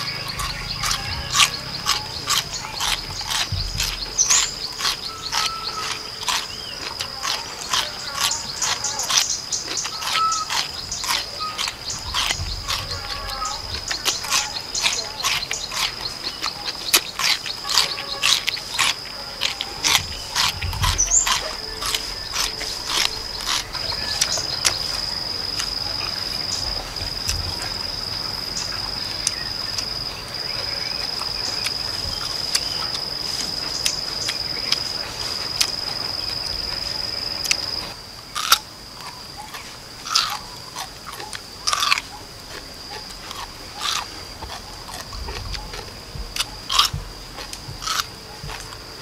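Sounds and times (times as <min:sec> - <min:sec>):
crunching bites and chewing: 0:00.0 - 0:49.0
high-pitched insect drone: 0:00.0 - 0:49.0.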